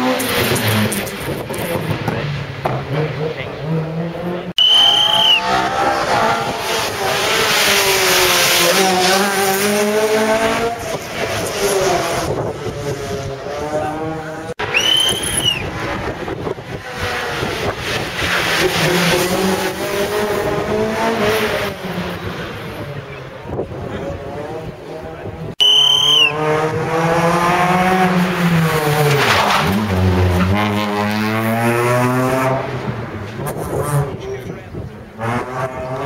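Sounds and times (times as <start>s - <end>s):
rally car engines revving: 0.0s - 36.0s
short high squeal: 4.6s - 5.5s.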